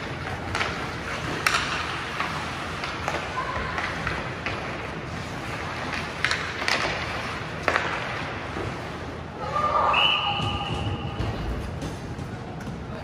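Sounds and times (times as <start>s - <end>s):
hockey stick hitting puck: 0.0s - 8.8s
ice hall background noise: 0.0s - 13.0s.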